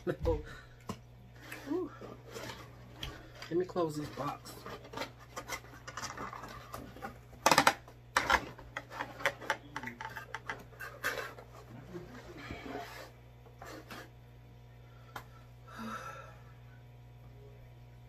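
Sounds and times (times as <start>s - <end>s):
cardboard scraping and rubbing: 10.0s - 14.2s.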